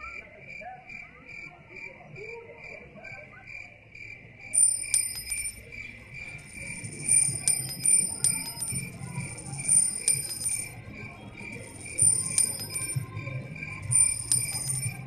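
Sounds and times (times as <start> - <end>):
crickets chirping: 0.0 - 15.0
high tinkling chimes: 4.6 - 15.0.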